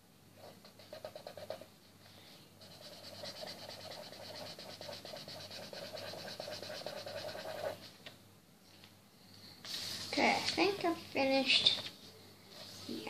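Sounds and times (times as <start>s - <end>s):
marker colouring on paper: 0.4s - 1.6s, 2.6s - 7.9s.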